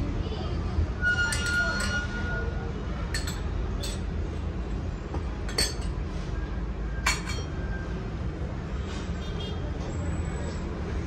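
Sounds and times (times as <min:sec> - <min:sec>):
kitchenware clinking: 0:01.3 - 0:02.1, 0:03.1 - 0:04.2, 0:05.5 - 0:06.0, 0:07.0 - 0:07.6.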